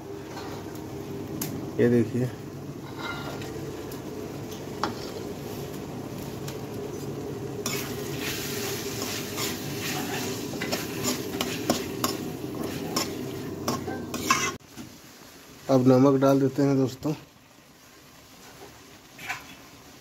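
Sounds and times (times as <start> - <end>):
food sizzling in a pan: 0.0 - 20.0
metal spatula scraping pan: 2.8 - 3.6, 4.8 - 5.3, 7.6 - 14.6.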